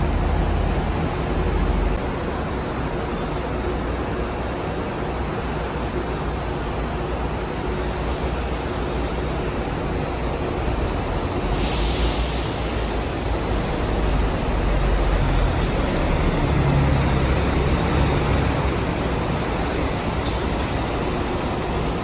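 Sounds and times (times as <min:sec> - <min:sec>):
buses rumbling past: 0:00.0 - 0:22.0
short air hiss: 0:11.5 - 0:12.9.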